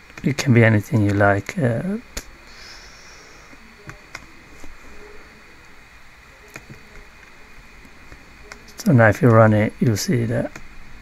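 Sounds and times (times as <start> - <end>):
low steady hiss: 0.0 - 11.0.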